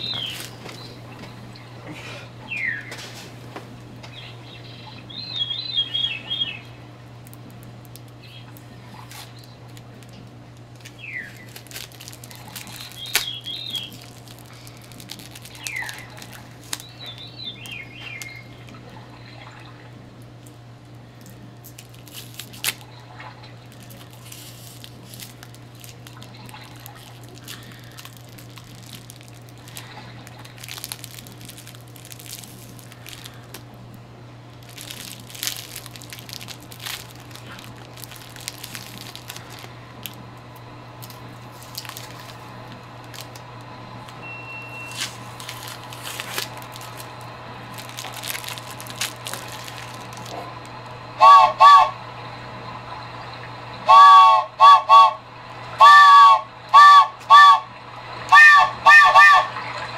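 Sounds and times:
cellophane crinkling: 0.0 - 1.4, 7.1 - 19.0, 20.8 - 51.0
steady low hum: 0.0 - 59.9.

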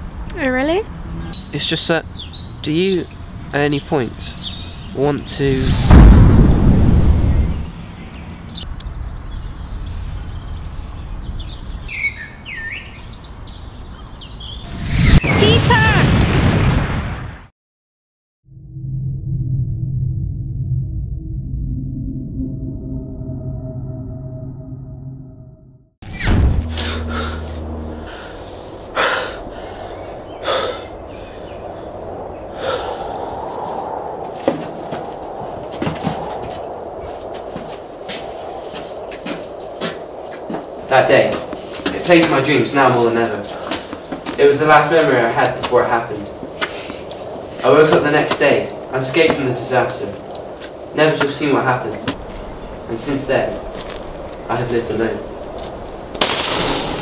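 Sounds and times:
birds chirping: 0.0 - 5.8, 7.1 - 15.6, 26.6 - 33.6, 38.9 - 56.1
deep rumble: 4.4 - 11.4, 18.5 - 40.8, 52.1 - 57.0
steady low rumble: 4.8 - 10.9, 18.5 - 41.8, 51.7 - 57.0
man breathing heavily: 26.7 - 31.1, 32.5 - 33.6.

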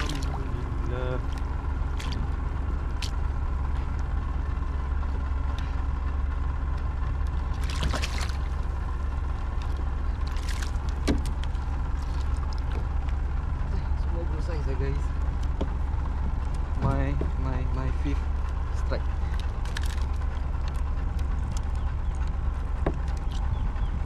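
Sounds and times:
water splashing against kayak: 0.0 - 3.4, 7.2 - 13.3, 18.2 - 21.7
low rumble: 0.0 - 24.0.

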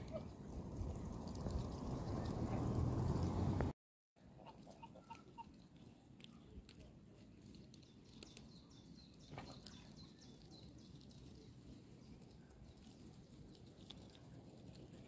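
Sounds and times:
faint low outdoor rumble: 0.0 - 15.0
goose pecking in gravel: 4.4 - 15.0.

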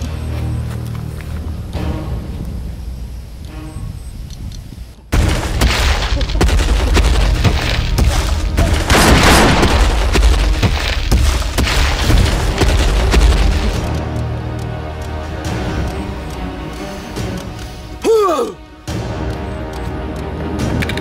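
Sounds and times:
booms: 5.1 - 13.8
sharp cracks: 5.1 - 14.7
dense noisy burst: 8.9 - 10.7.

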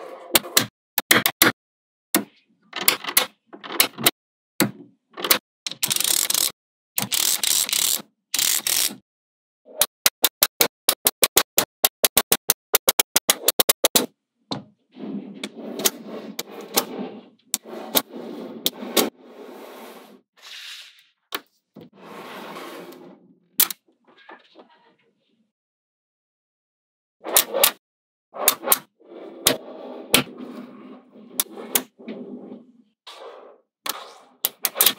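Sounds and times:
magnetic balls clicking together: 10.1 - 14.0
rapid sharp clicks: 10.1 - 14.0.

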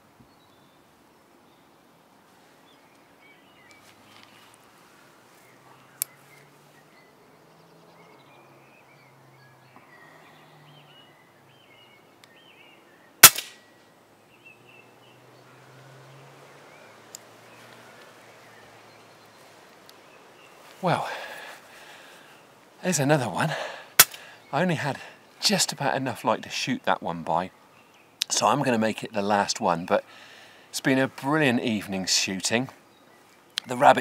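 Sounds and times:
small birds chirping: 0.0 - 34.0
faint click: 6.0 - 6.2
air rifle shot crack: 13.2 - 13.7, 24.0 - 24.2.

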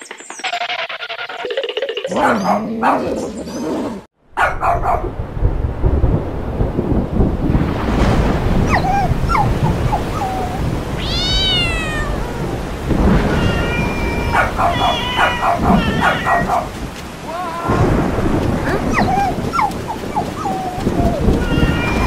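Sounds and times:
animal yelping: 0.4 - 4.1, 13.3 - 16.7, 18.7 - 22.0
low thunder rumble: 4.4 - 22.0
heavy rain: 5.0 - 22.0
animal whining: 13.3 - 16.7.

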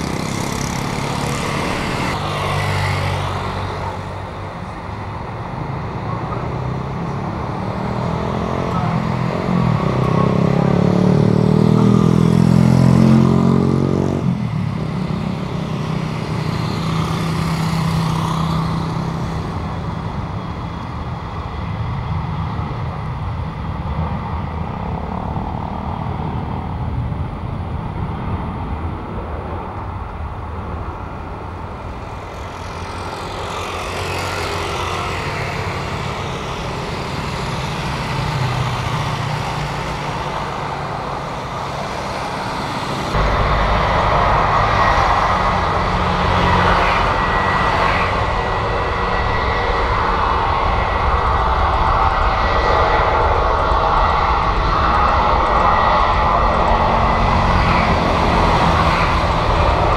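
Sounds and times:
jet airliner passing overhead: 0.0 - 59.9
loud low engine drone: 0.0 - 59.9.

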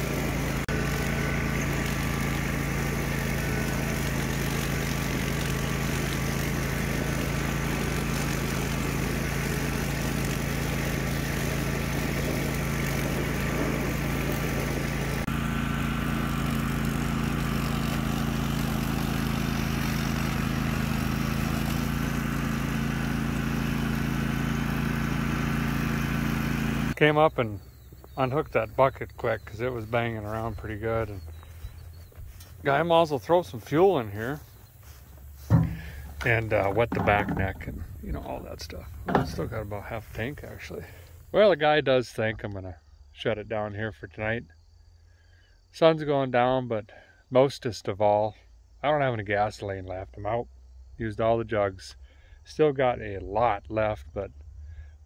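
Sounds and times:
mower petrol engine: 0.0 - 41.5
tractor diesel engine running: 0.0 - 41.6.

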